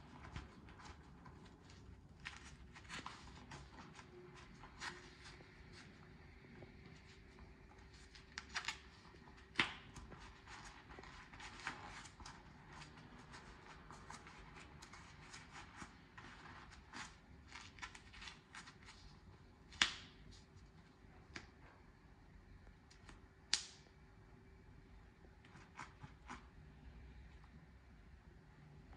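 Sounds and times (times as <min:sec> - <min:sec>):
gloves rustling and clicking: 0:00.0 - 0:06.0, 0:06.9 - 0:21.6.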